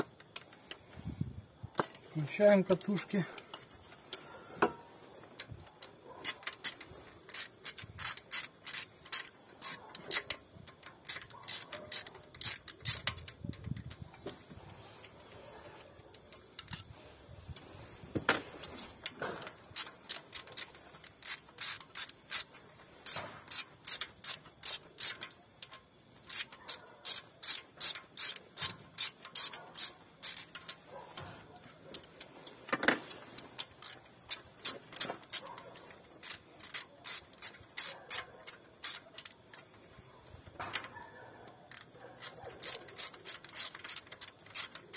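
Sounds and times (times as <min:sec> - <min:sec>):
ratchet wrench clicking: 0:05.4 - 0:14.4, 0:16.1 - 0:16.9, 0:19.0 - 0:39.8, 0:41.6 - 0:44.9.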